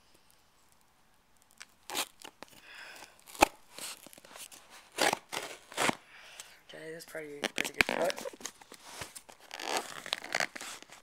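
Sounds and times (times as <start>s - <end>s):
cardboard crunching: 1.6s - 6.0s, 7.3s - 11.0s
blade cutting packing tape: 1.8s - 2.3s, 3.3s - 4.2s, 4.8s - 6.0s, 9.4s - 11.0s.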